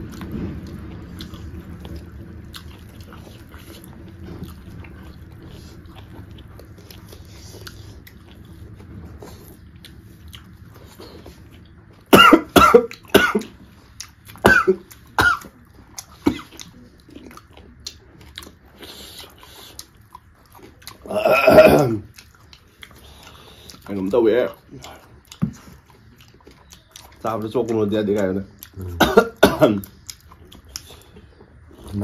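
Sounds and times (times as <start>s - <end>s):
person chewing: 0.0s - 32.0s
sharp coughs: 12.1s - 13.6s, 14.4s - 15.6s, 21.1s - 22.0s, 29.0s - 29.8s.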